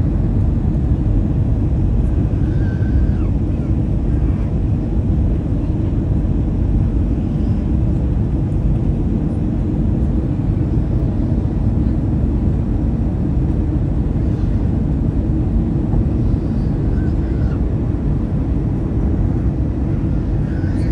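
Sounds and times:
airliner engines rumbling: 0:00.0 - 0:20.9.

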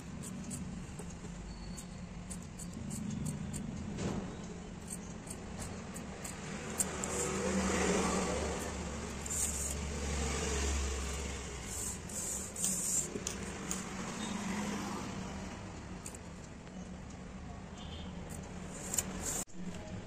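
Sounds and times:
shears snipping cloth: 0:04.8 - 0:09.9, 0:18.3 - 0:19.4.

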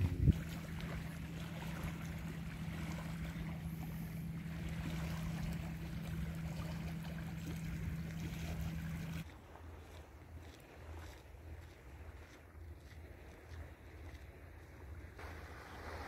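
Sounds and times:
boat engine droning: 0:00.0 - 0:10.0
wind and water hiss: 0:00.0 - 0:16.0.

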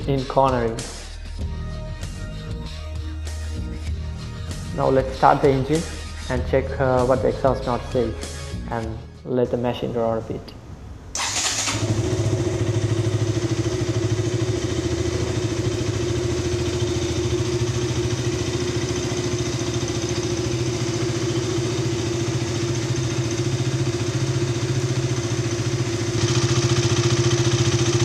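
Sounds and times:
motorcycle engine idling: 0:11.2 - 0:28.0.

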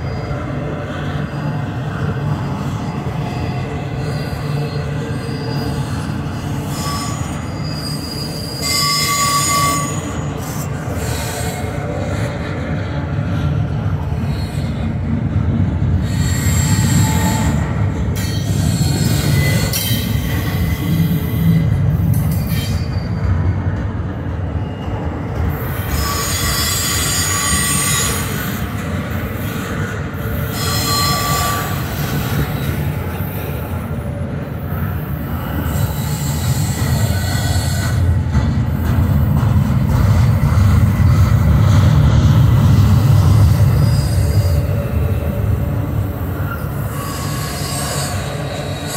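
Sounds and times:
train wheels rumbling on rail: 0:00.0 - 0:48.9
high-pitched wheel squeal: 0:02.4 - 0:11.7, 0:16.0 - 0:21.6, 0:24.6 - 0:28.7, 0:30.3 - 0:33.8, 0:43.4 - 0:48.9.

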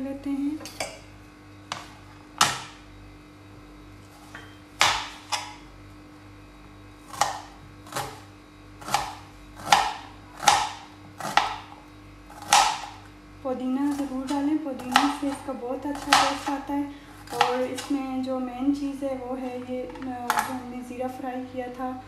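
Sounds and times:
knife chopping onion on board: 0:01.7 - 0:02.8, 0:04.2 - 0:05.6, 0:07.0 - 0:13.0, 0:13.8 - 0:16.6, 0:17.2 - 0:18.0.

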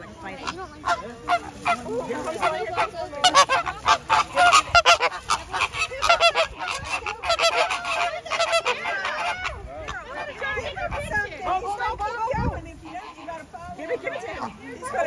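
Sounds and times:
birds honking: 0:00.0 - 0:11.2.

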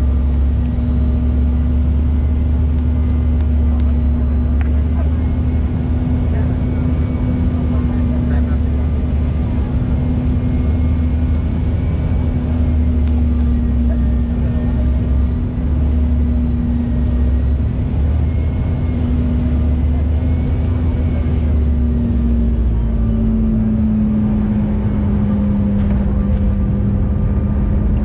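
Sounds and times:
jet engine rumble in cabin: 0:00.0 - 0:28.0.

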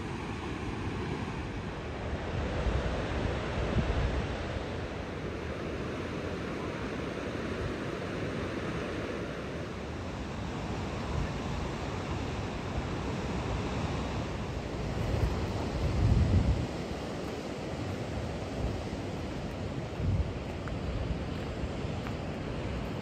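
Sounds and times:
ocean surf: 0:00.0 - 0:23.0
wind buffeting microphone: 0:10.8 - 0:23.0.

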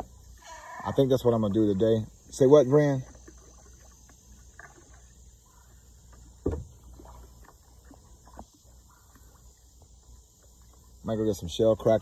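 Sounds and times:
insect chirring: 0:00.0 - 0:12.0
dull thump: 0:06.4 - 0:06.9.

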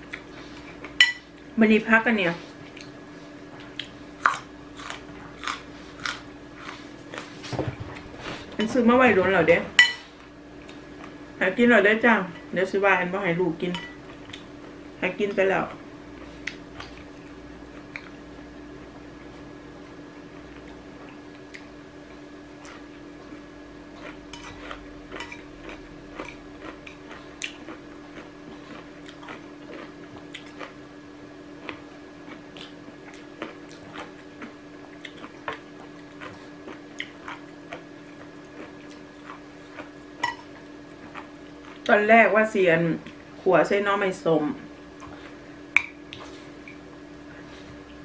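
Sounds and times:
chewing: 0:02.6 - 0:03.0, 0:03.6 - 0:08.5, 0:22.6 - 0:30.8, 0:31.6 - 0:41.9, 0:45.0 - 0:48.0.

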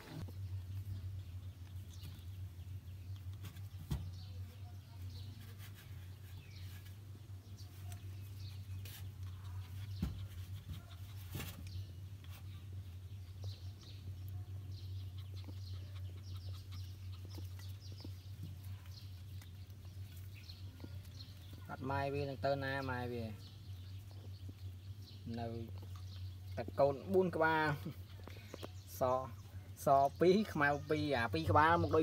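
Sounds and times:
steady low hum: 0:00.0 - 0:32.0
puppies squeaking and yipping: 0:14.7 - 0:20.4.

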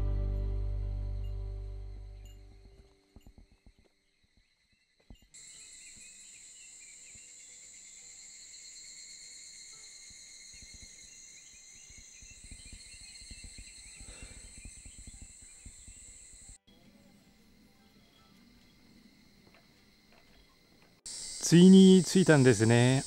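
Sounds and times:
insects shrilling: 0:05.4 - 0:16.6, 0:21.1 - 0:23.0.

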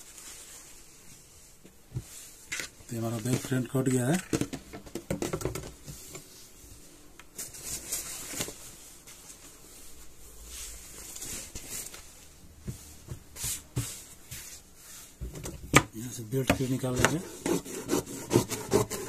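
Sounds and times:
cloth rustling: 0:00.0 - 0:04.2, 0:06.0 - 0:15.2.

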